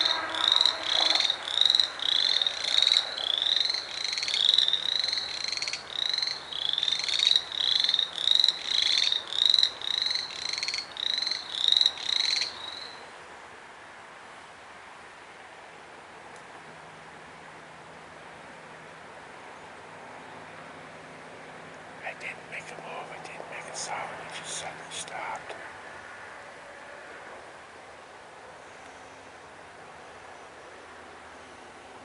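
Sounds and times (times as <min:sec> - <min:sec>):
frogs calling: 0:00.0 - 0:13.1.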